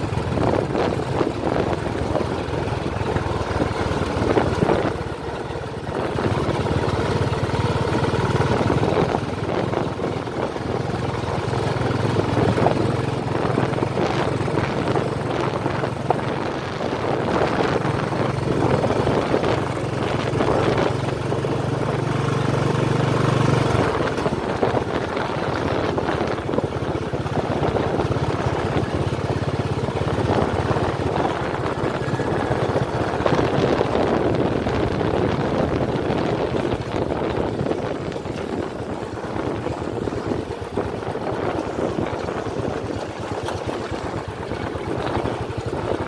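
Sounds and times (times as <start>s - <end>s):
vehicle engine running: 0.0s - 46.0s
wind buffeting microphone: 0.0s - 46.0s.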